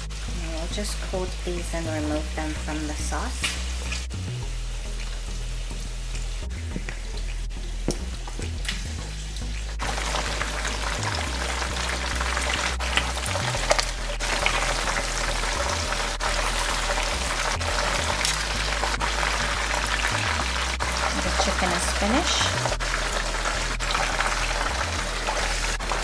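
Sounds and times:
chicken sizzling in hot oil: 0.0s - 26.0s.

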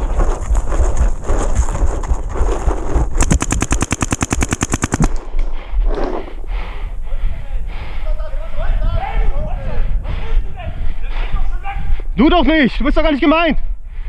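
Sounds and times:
wind on microphone: 0.0s - 4.0s, 5.0s - 12.5s
running footsteps rumbling: 0.0s - 8.0s
paintball marker full-auto burst: 3.2s - 5.5s.

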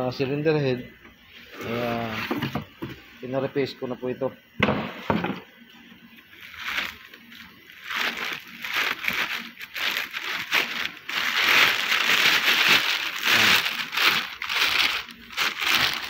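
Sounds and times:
plastic wrapping crinkling: 6.2s - 16.0s.

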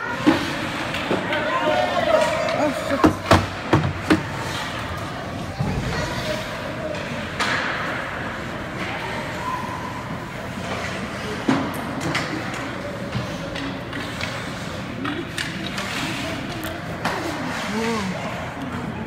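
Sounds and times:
faint voices in arena: 0.0s - 19.0s
skates scraping on ice: 0.0s - 19.0s
hockey sticks knocking puck: 0.1s - 5.1s, 6.8s - 8.9s, 10.6s - 18.5s.

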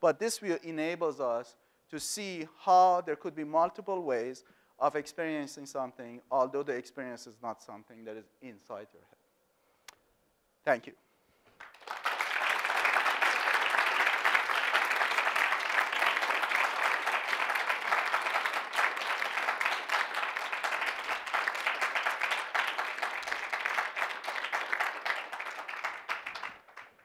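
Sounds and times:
audience applauding: 11.5s - 27.0s.

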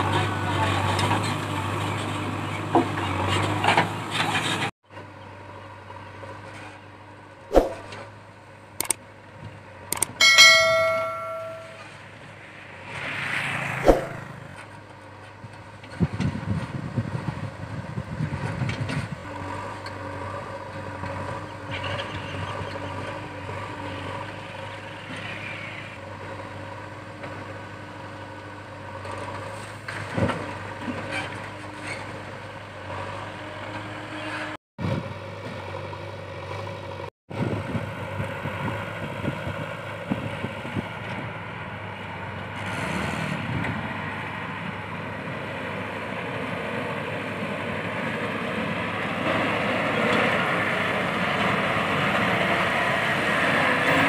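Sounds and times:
sharp metal knocks: 10.0s - 11.9s, 13.8s - 14.2s
ringing metal clang: 10.2s - 12.0s
diesel engine running: 13.5s - 54.0s.

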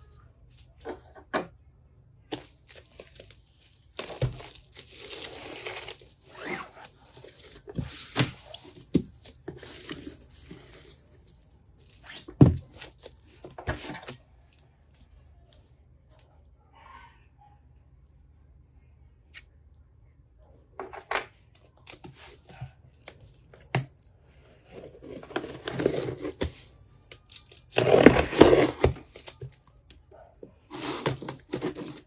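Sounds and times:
plastic wrap crinkling: 2.2s - 14.6s, 21.6s - 29.9s, 30.7s - 32.0s.

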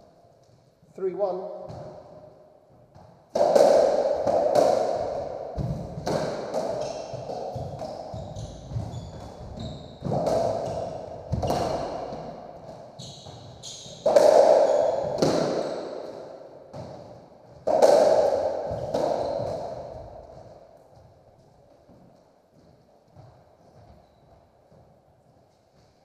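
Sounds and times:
ball smacking off walls: 3.3s - 7.9s, 14.0s - 15.6s, 16.7s - 20.4s
racket striking ball: 3.3s - 20.7s
shoes squeaking on wooden floor: 6.6s - 12.1s, 12.8s - 14.1s.

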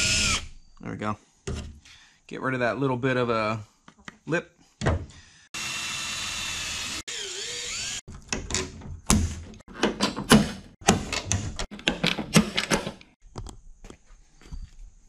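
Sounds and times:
cordless drill spinning: 0.0s - 0.4s, 5.5s - 8.1s.

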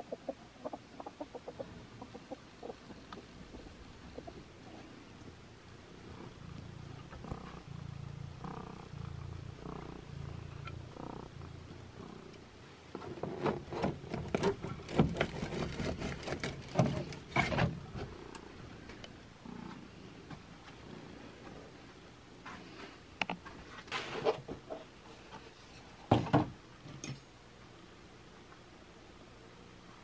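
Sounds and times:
cat purring: 1.6s - 21.9s.

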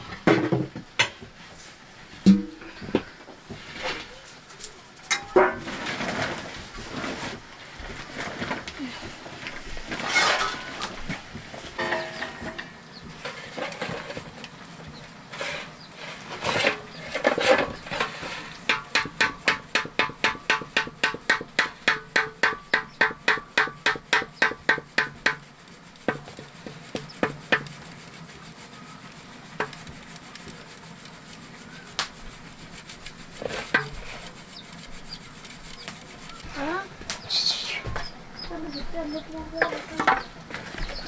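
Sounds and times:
rhythmic rubbing strokes: 15.3s - 41.0s
scattered knocks: 18.7s - 25.4s.

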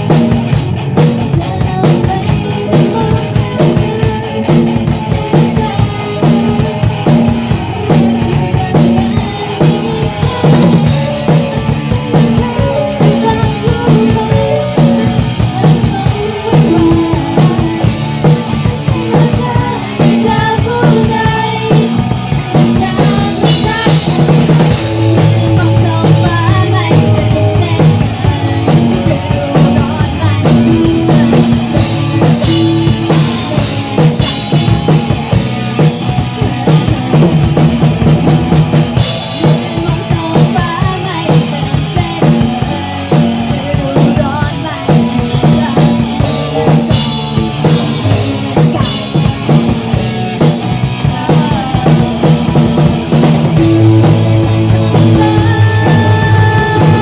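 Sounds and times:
drum kit: 0.0s - 57.0s
live rock band playing: 0.0s - 57.0s.

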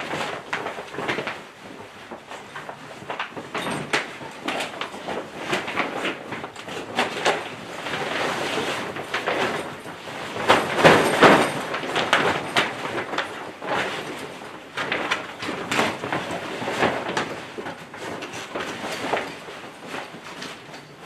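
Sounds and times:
tent fabric rustling and scraping: 0.0s - 21.0s.

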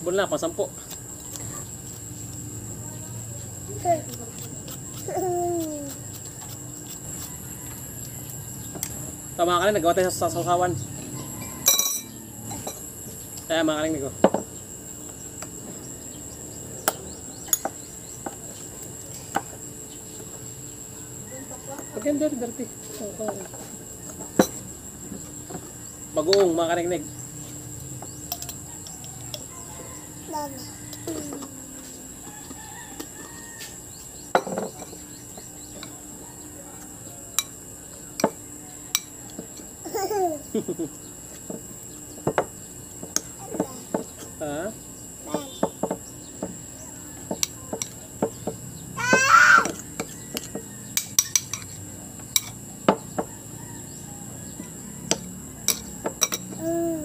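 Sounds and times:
high-pitched insect drone: 0.0s - 57.0s
toddler babbling: 5.1s - 6.0s, 30.3s - 31.8s, 39.8s - 40.4s, 45.3s - 45.6s, 49.0s - 49.8s, 56.5s - 57.0s.

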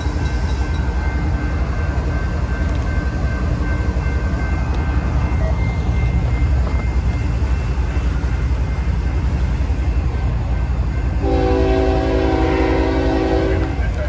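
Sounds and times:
locomotive air horn chord: 11.2s - 14.0s.

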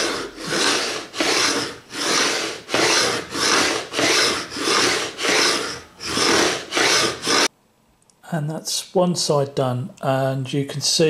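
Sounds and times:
file rasping on fret ends: 0.0s - 7.5s.

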